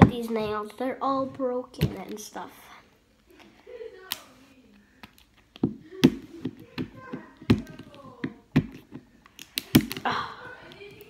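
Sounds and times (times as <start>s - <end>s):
fingernails tapping plastic ball: 5.0s - 10.0s.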